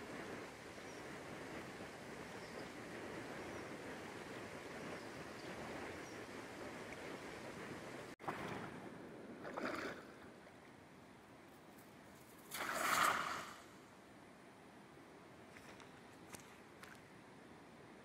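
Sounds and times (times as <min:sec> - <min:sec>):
water swishing: 0:08.0 - 0:10.6, 0:12.4 - 0:13.9
net splashing into water: 0:12.5 - 0:13.8
river current over rocks: 0:12.6 - 0:13.8.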